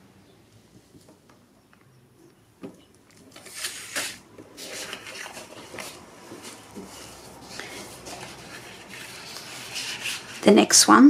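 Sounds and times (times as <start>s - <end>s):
paper sliding and rustling: 3.2s - 10.5s.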